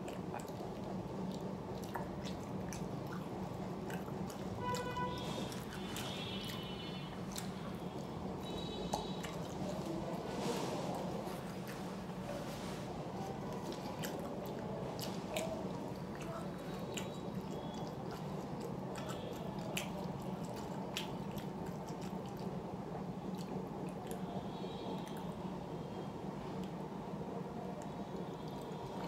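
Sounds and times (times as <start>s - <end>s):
mouth clicks and smacks: 0.0s - 9.6s, 13.6s - 22.5s
person chewing food: 0.0s - 10.1s, 13.2s - 22.6s, 23.3s - 24.2s
steady low hum: 0.0s - 29.0s.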